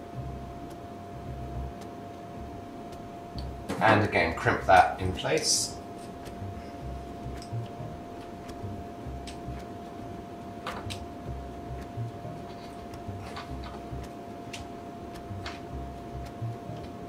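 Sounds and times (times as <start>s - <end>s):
faint steady hum: 0.0s - 17.0s
wires being handled: 12.4s - 15.7s.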